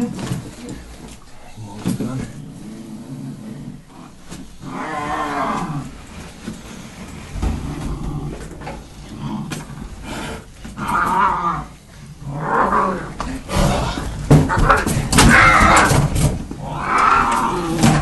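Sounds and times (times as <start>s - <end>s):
cat yowling: 16.6s - 18.0s.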